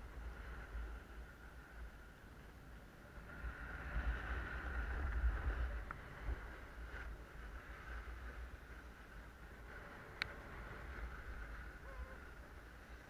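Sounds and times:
wind rumble on microphone: 0:00.0 - 0:13.0
snowboard sliding on snow: 0:03.0 - 0:13.0.

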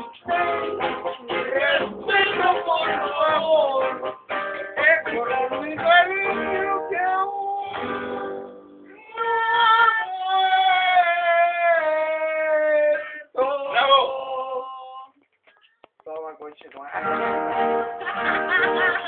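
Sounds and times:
backing music: 0:00.0 - 0:08.8, 0:16.9 - 0:19.0
man singing into a microphone: 0:01.2 - 0:04.0, 0:04.6 - 0:07.9, 0:08.9 - 0:15.1.

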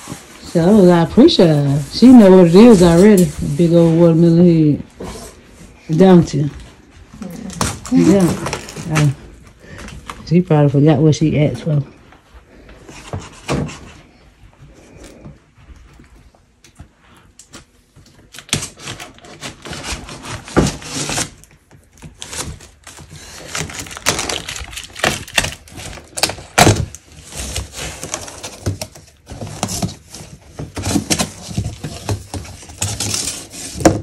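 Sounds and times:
cardboard crackling and rustling: 0:00.0 - 0:10.3, 0:17.6 - 0:34.0
scissors cutting cardboard: 0:17.6 - 0:34.0.

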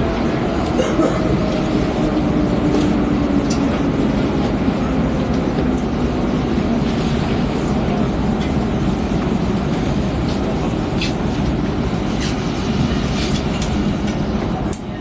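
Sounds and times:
electric train rumbling: 0:00.0 - 0:15.0.

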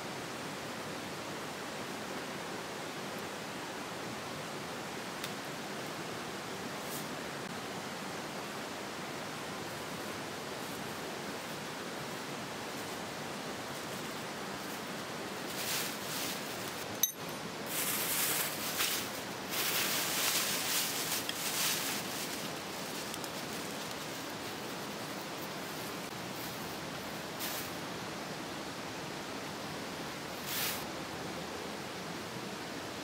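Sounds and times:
dry twigs rustling: 0:13.8 - 0:26.6
plastic bag crinkling: 0:19.6 - 0:25.1.

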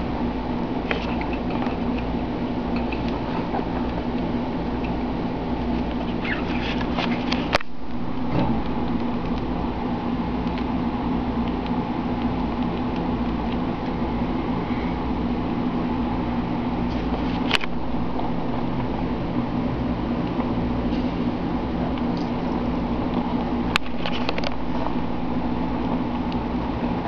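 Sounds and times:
steady hum: 0:00.0 - 0:27.0
rat pups squeaking: 0:05.7 - 0:07.5.

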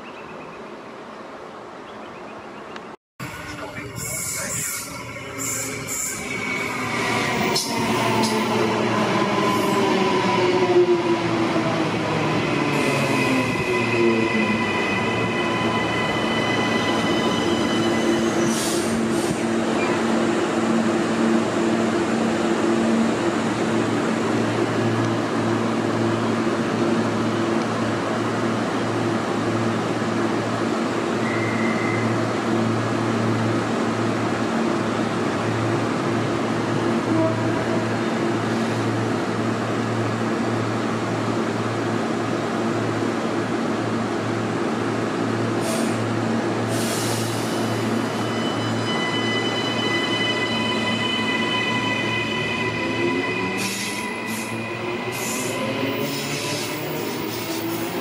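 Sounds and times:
train brakes squealing: 0:04.0 - 0:09.9, 0:12.7 - 0:20.0, 0:31.2 - 0:32.2, 0:46.7 - 0:58.0.

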